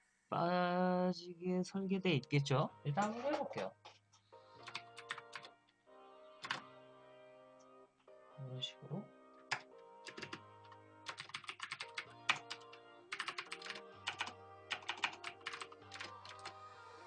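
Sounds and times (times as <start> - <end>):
background music with held tones: 0.0 - 17.0
computer keyboard typing: 4.6 - 5.5, 6.4 - 6.6, 9.5 - 16.6.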